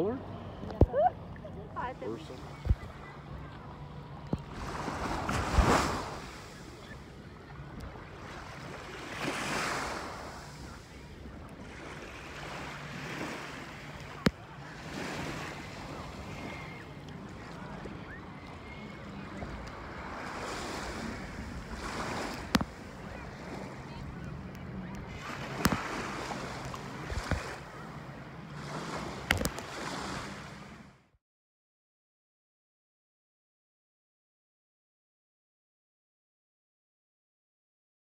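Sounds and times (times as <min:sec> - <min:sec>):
waves washing onto beach: 0:01.9 - 0:30.9
wind on microphone: 0:17.5 - 0:27.9.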